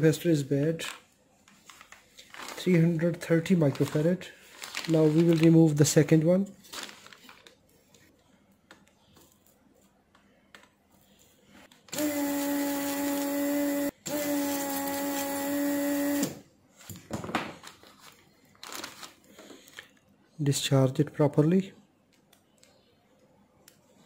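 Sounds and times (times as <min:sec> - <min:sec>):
vacuum pump humming whine: 0:11.9 - 0:16.4.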